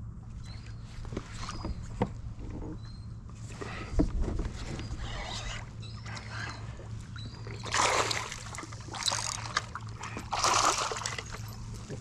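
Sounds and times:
fish splashing at surface: 0:07.6 - 0:11.4.

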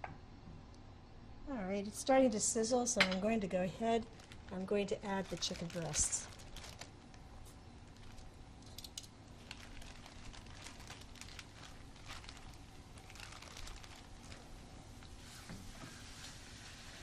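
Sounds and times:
plastic bag crinkling: 0:03.9 - 0:15.3
oil sizzling in a skillet: 0:15.1 - 0:17.0.

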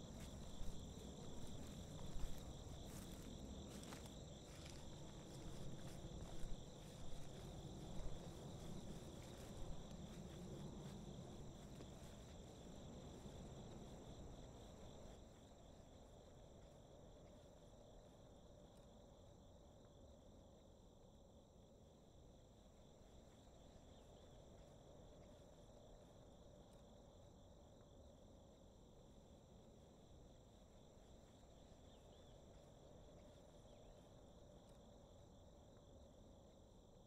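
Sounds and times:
crickets chirring: 0:00.0 - 0:20.0, 0:29.5 - 0:37.0.

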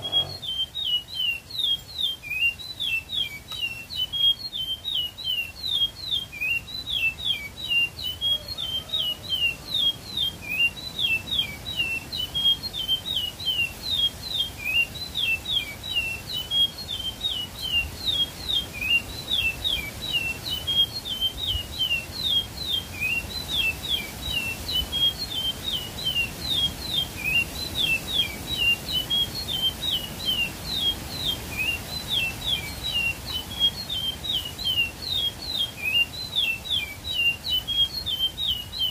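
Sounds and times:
songbird singing: 0:00.0 - 0:38.9.

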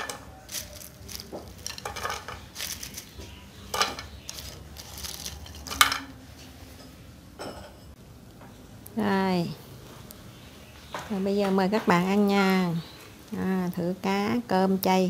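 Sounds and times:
chopsticks clinking on ceramic: 0:00.0 - 0:06.2
crispy food rustling: 0:00.0 - 0:06.2.

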